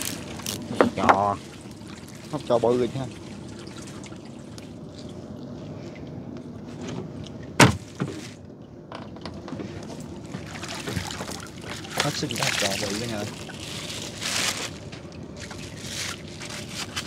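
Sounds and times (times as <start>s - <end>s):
boat engine humming: 0.0s - 17.0s
water dripping and sloshing: 0.0s - 17.0s
knocks on boat: 7.6s - 8.2s.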